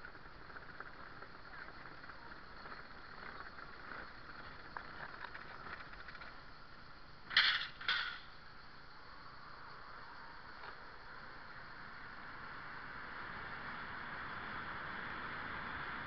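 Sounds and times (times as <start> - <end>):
car tyres rolling over cobbles: 0.0 - 8.9.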